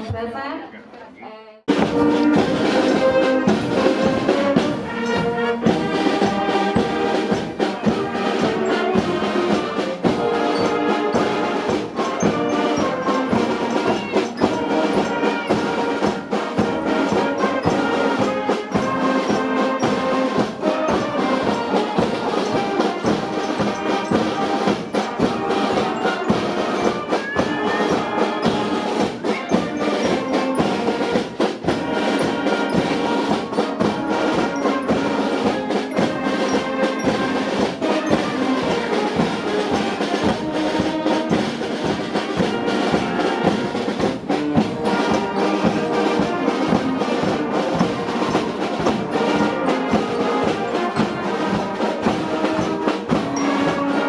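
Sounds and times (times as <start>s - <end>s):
brass bands playing: 1.6s - 54.0s
drum beat: 1.7s - 54.0s.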